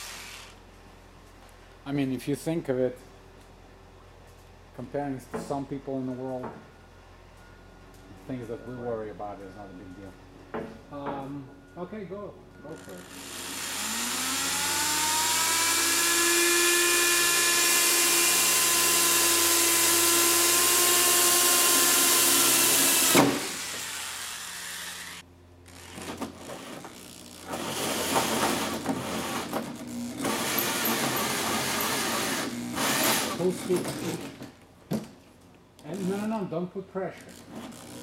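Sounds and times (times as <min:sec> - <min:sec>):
electric drill cutting metal: 0:00.0 - 0:00.6, 0:12.7 - 0:33.5, 0:37.2 - 0:38.0.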